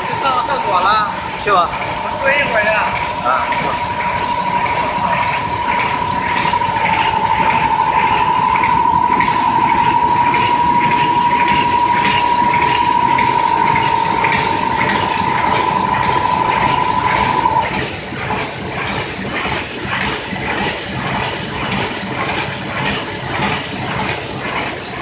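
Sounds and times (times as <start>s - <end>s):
steady high whine: 0.0s - 17.9s
die cutter rhythmic clatter: 0.0s - 25.0s.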